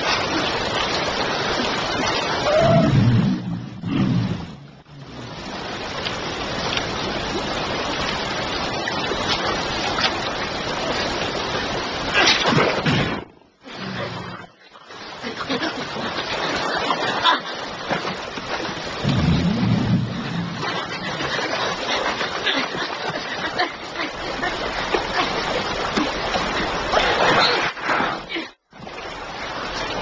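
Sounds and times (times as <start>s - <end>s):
river rushing and splashing: 0.0s - 30.0s
low animal growl: 2.6s - 5.3s.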